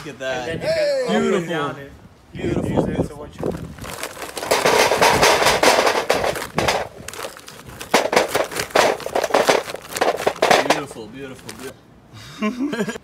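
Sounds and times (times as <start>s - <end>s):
charcoal clattering into metal grill: 3.8s - 11.0s.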